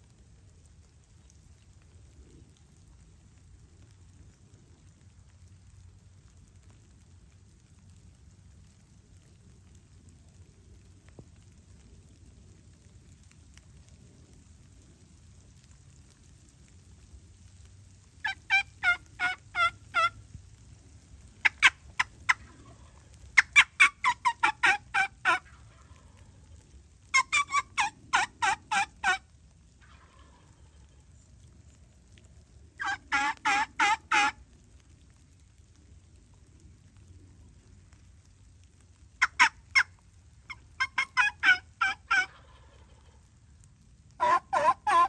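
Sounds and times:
turkey hen yelping: 18.2 - 20.2, 21.4 - 26.4, 27.1 - 31.0, 32.8 - 34.4, 39.2 - 43.2, 44.2 - 45.0.

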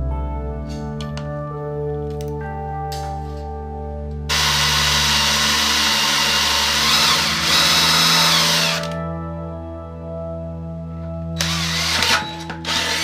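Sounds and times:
soft ambient music: 0.0 - 13.0
cordless drill boring into steel: 4.3 - 9.0, 11.4 - 13.0.

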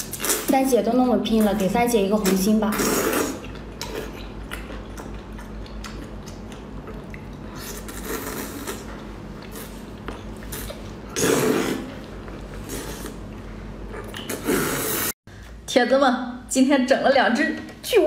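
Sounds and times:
wet slurping and chewing: 0.0 - 0.7, 1.3 - 15.2
sticky mouth clicks: 13.9 - 15.1.

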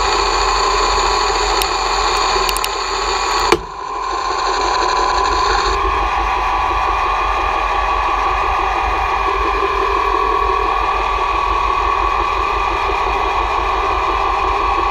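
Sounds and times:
sharp click: 3.4 - 3.8.

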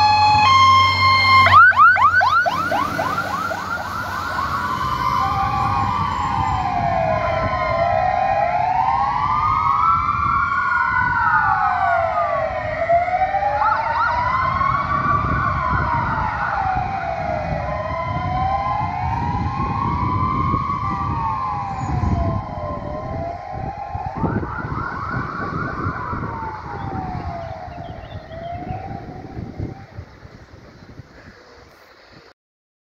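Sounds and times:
fire engine sirens wailing: 0.0 - 30.3
diesel engines rumbling: 0.0 - 31.8.

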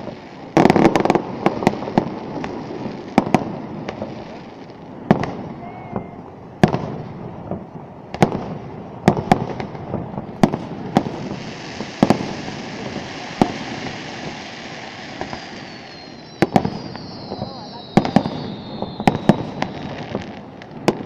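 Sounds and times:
fireworks bursting: 0.0 - 21.0.

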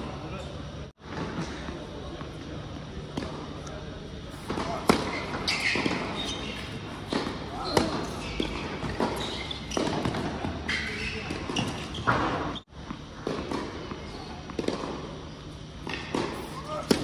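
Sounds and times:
tennis ball bouncing: 4.4 - 10.5, 14.5 - 15.0, 15.8 - 17.0.

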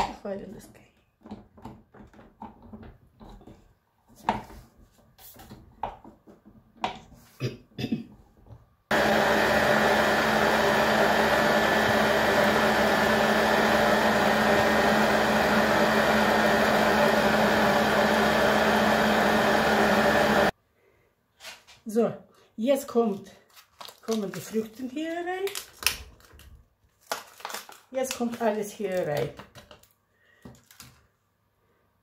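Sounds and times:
stand mixer motor humming: 8.9 - 20.5.

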